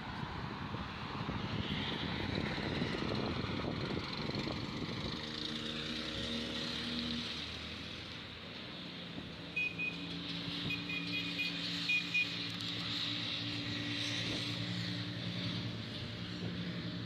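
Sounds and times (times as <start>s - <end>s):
road traffic: 0.0s - 17.0s
vehicle engine hum: 0.0s - 17.0s
wind buffeting microphone: 0.3s - 5.3s.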